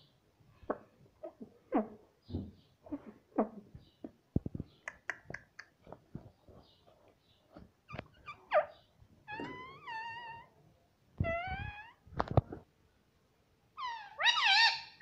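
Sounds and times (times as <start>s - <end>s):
parakeet squeaky chirps: 13.8s - 15.0s
parakeet wavering nasal call: 13.8s - 15.0s.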